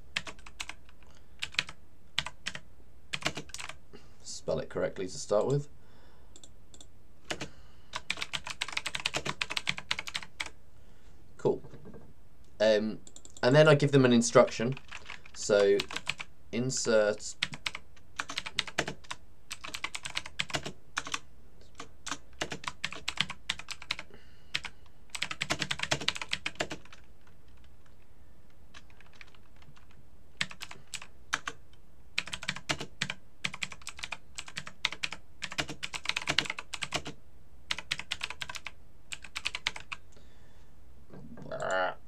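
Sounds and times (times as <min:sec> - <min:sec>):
typing on computer keyboard: 0:00.2 - 0:03.8, 0:06.4 - 0:10.6, 0:13.0 - 0:13.5, 0:14.7 - 0:16.3, 0:17.4 - 0:27.7, 0:28.8 - 0:31.6, 0:32.2 - 0:40.0.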